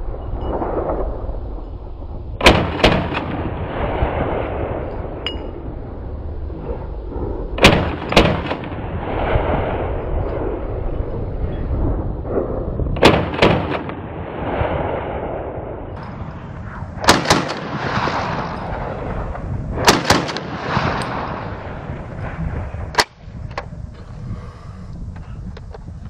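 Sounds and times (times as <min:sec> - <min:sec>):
rifle shots: 0:02.4 - 0:05.2, 0:07.6 - 0:10.6, 0:13.0 - 0:23.2.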